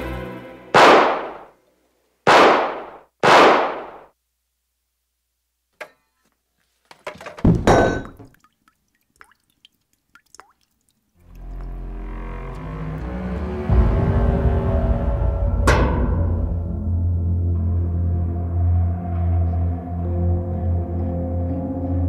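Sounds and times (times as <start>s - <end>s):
pistol shots echoing: 0.8s - 1.5s, 2.3s - 4.1s.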